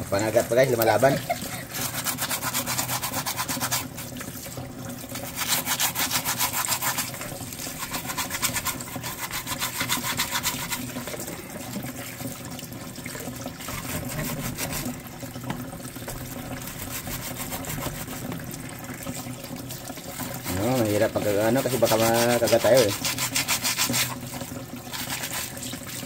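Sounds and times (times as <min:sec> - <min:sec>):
scrub brush rasping on shell: 0:01.7 - 0:04.0, 0:05.2 - 0:11.2, 0:13.6 - 0:14.9, 0:16.6 - 0:18.3, 0:20.1 - 0:26.0
tap water splashing into sink: 0:03.1 - 0:26.0.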